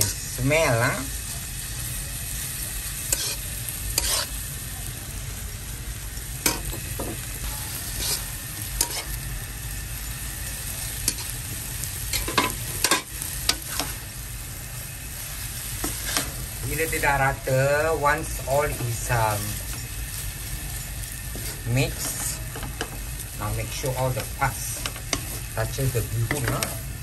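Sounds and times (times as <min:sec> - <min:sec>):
food sizzling in a wok: 0:00.0 - 0:27.0
spatula scraping and tapping pan: 0:03.2 - 0:03.4, 0:04.0 - 0:04.3, 0:08.0 - 0:09.2, 0:12.1 - 0:14.0, 0:24.2 - 0:25.4, 0:26.2 - 0:26.8.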